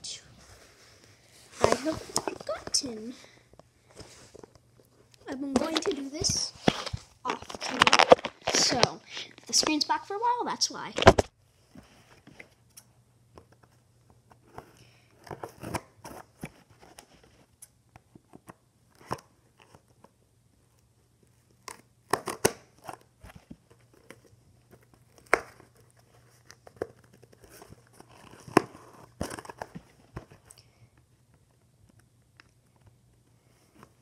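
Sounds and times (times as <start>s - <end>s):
packaging tearing and crinkling: 6.6s - 9.4s.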